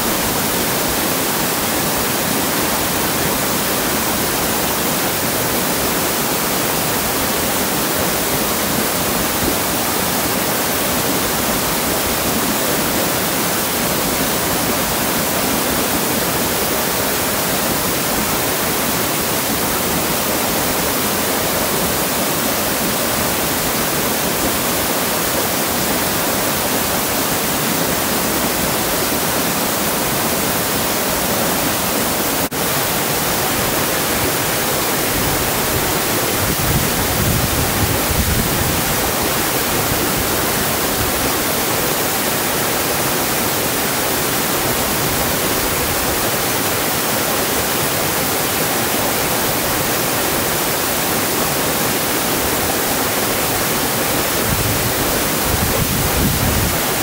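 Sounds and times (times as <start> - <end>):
waterfall rushing onto rocks: 0.0 - 57.0.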